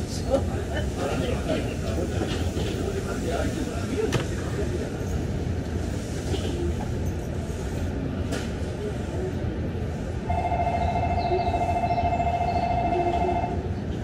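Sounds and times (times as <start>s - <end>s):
train rumble inside car: 0.0s - 14.0s.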